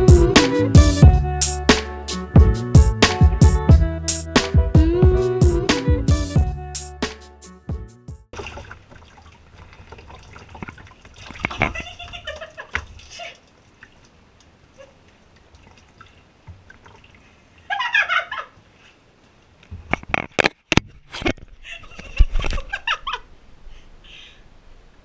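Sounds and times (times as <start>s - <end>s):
water splashing and dripping: 8.3s - 17.8s.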